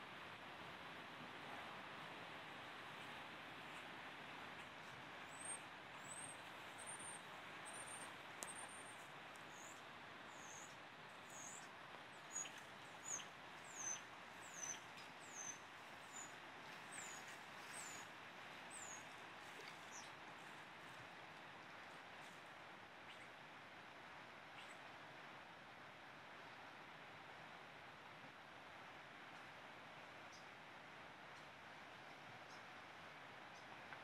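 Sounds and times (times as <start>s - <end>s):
faint steady rushing hiss: 0.0s - 34.0s
small bird chirping: 11.3s - 11.6s, 12.3s - 16.3s.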